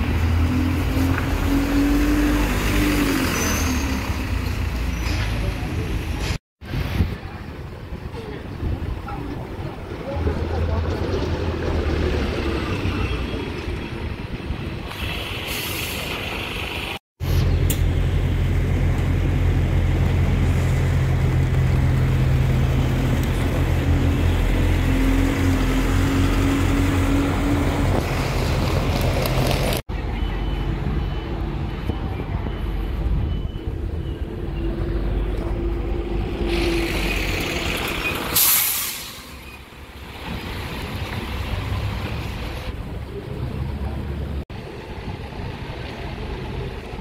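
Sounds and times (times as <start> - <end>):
diesel bus engines running: 14.0 - 47.0
air brakes hissing: 14.9 - 16.4, 38.2 - 39.6.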